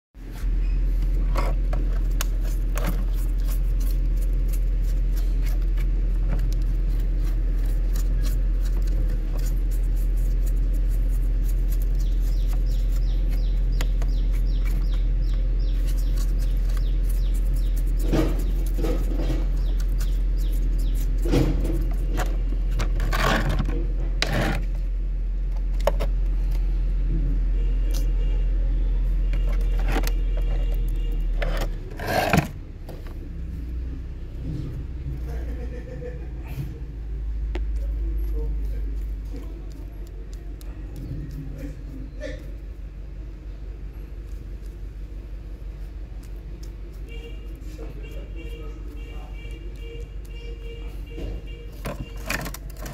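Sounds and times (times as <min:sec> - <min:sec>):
steady low hum: 0:00.2 - 0:52.9
brush scrubbing plastic: 0:01.1 - 0:24.7, 0:45.8 - 0:52.9
plastic parts clicking: 0:51.8 - 0:52.9.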